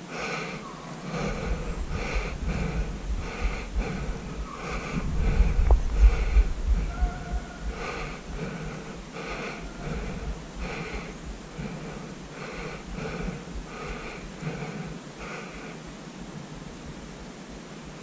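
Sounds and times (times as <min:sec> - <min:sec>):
man panting while running: 0:00.0 - 0:15.9
wind buffeting microphone: 0:01.0 - 0:15.1.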